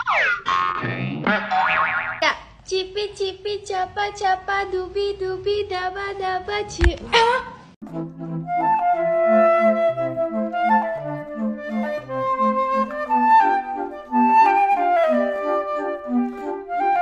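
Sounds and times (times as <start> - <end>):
bouncing low notes: 0.0 - 2.3
light woodwind melody: 7.8 - 17.0.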